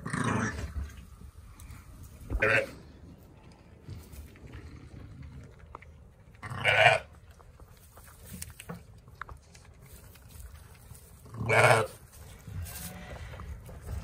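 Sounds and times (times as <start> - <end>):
sheep bleating: 2.3 - 2.8, 11.4 - 12.0.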